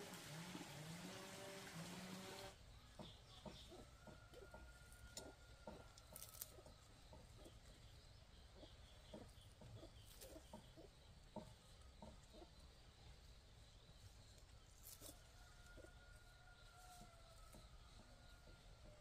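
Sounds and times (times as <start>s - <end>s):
chickens clucking: 0.0s - 13.3s.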